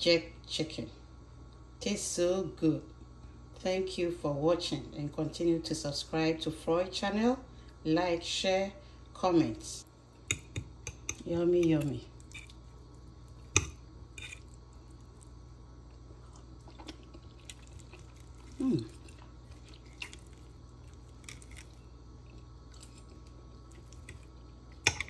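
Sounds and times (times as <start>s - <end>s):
steady low hum: 0.0s - 25.0s
fork clicking on plate: 10.2s - 12.6s
person chewing: 12.2s - 25.0s.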